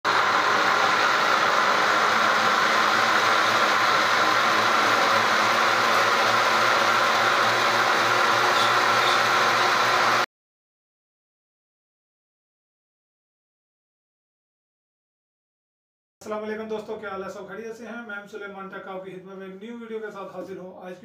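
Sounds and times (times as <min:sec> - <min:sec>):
blender motor whining: 0:00.0 - 0:10.3.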